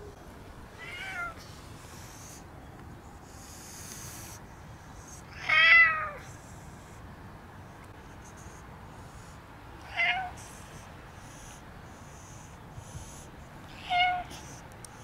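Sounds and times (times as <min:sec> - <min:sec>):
cat meowing: 0:00.8 - 0:01.4, 0:05.4 - 0:06.2, 0:09.8 - 0:10.4, 0:13.8 - 0:14.3.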